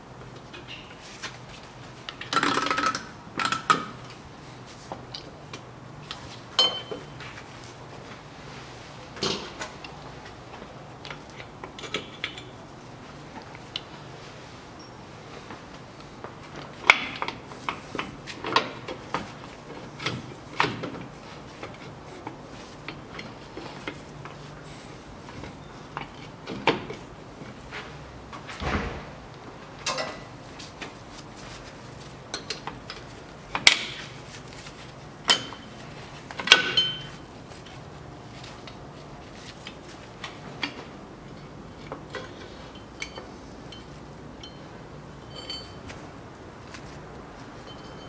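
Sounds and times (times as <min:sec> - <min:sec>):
sharp ringing metal clanks: 0:06.6 - 0:07.0, 0:45.2 - 0:45.8.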